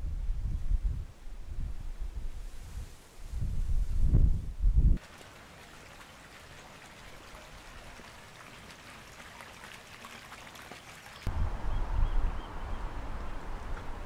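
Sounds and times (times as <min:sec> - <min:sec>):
wind rumbling on microphone: 0:00.0 - 0:05.0, 0:11.2 - 0:14.0
fountain splashing into pond: 0:05.0 - 0:11.3.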